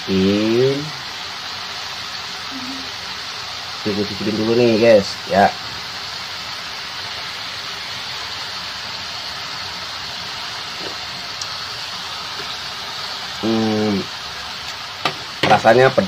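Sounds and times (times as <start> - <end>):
greens and meat sizzling in a wok: 0.0 - 16.0
person humming: 2.5 - 2.9.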